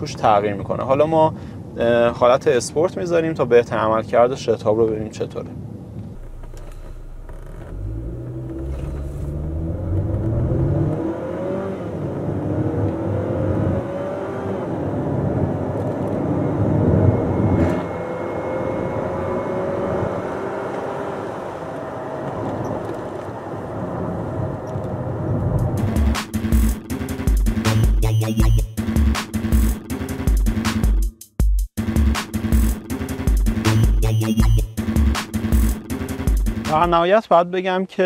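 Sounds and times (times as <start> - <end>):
car engine accelerating hard: 6.2 - 27.2
electronic music: 25.6 - 37.0.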